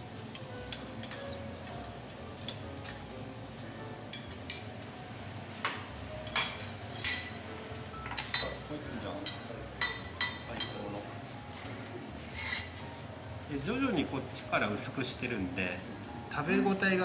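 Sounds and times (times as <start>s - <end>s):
low background noise: 0.0s - 17.0s
utensils clinking on steel griddle: 0.2s - 4.7s, 6.2s - 7.4s, 8.0s - 8.6s, 9.2s - 11.0s, 12.3s - 12.8s.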